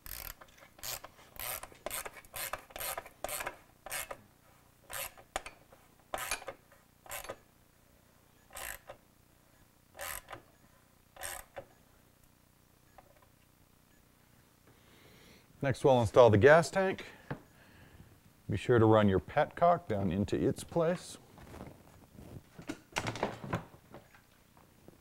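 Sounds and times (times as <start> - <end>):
ratchet wrench strokes: 0.0 - 4.2, 4.9 - 7.4, 8.5 - 9.0, 10.0 - 10.4, 11.2 - 11.6.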